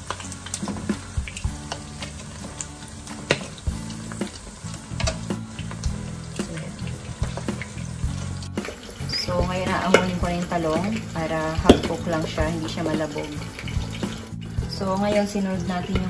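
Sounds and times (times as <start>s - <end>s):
oil spattering pops: 0.0s - 11.0s, 11.6s - 12.2s
pork frying in hot oil: 0.0s - 16.0s.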